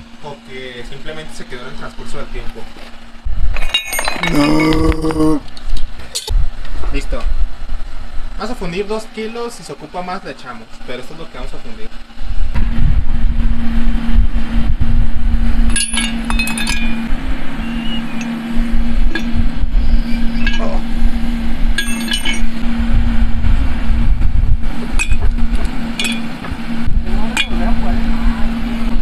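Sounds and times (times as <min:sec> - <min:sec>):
furnace blower humming: 0:00.0 - 0:29.0
metal scrap clinking in crucible: 0:03.5 - 0:04.8, 0:15.7 - 0:17.0, 0:21.8 - 0:22.6, 0:26.0 - 0:26.3.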